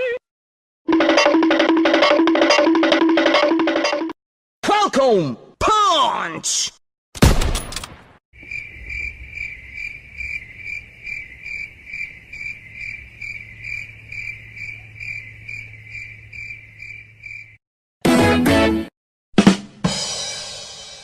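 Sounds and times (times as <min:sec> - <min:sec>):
crickets chirping: 0:08.4 - 0:17.6.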